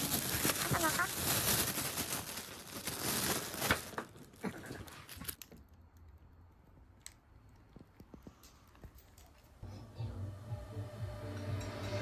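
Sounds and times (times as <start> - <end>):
plastic bag rustling: 0.0 - 5.4.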